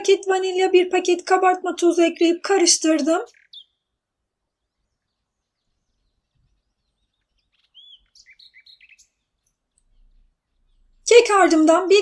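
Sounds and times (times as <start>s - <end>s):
small bird chirping: 2.9s - 11.6s.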